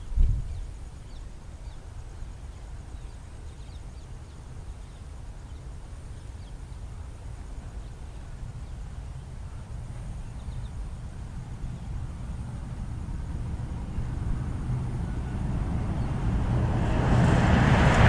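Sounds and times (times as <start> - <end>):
birds chirping faintly: 0.0 - 16.5
train rumbling: 6.9 - 18.0.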